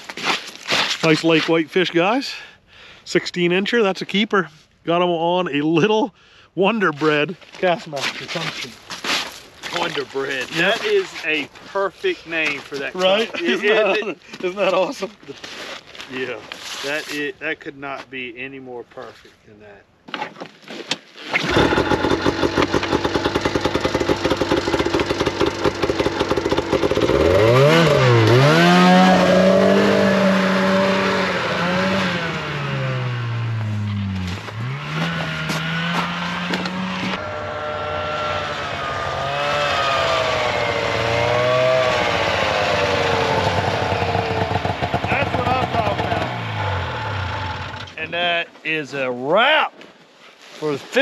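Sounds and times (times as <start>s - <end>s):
snowmobile engine revving: 9.7s - 15.1s, 21.4s - 48.2s.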